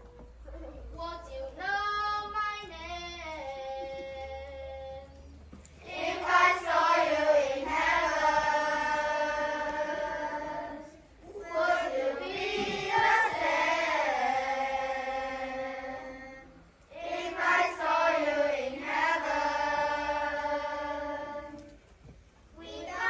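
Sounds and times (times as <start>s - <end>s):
children singing in unison: 5.8s - 21.8s, 22.6s - 23.0s.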